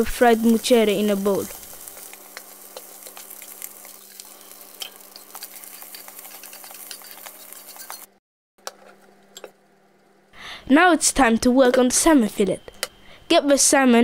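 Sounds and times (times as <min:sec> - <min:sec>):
rice sizzling: 0:00.0 - 0:10.4
spatula scraping frying pan: 0:01.2 - 0:08.9.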